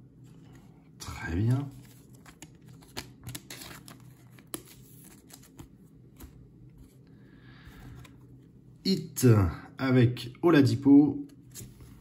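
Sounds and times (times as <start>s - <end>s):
cards rustling and clicking: 1.4s - 7.0s.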